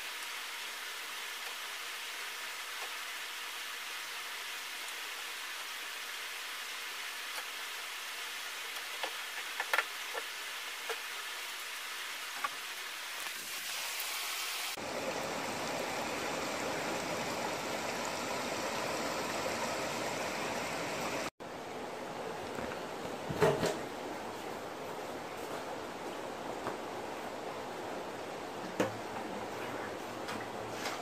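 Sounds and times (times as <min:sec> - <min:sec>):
running water: 0:08.6 - 0:21.3.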